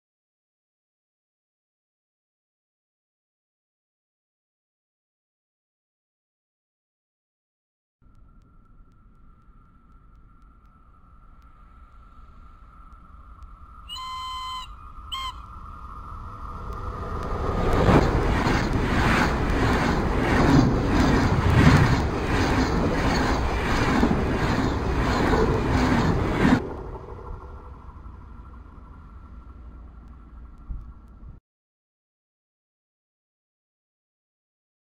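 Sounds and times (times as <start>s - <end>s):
train passing at speed: 8.6s - 31.4s
train horn blast: 13.9s - 15.6s.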